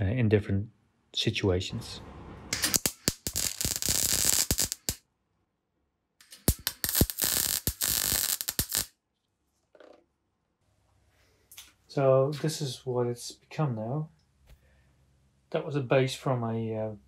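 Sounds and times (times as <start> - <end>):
welding arc crackling: 2.5 - 5.0, 6.2 - 8.9.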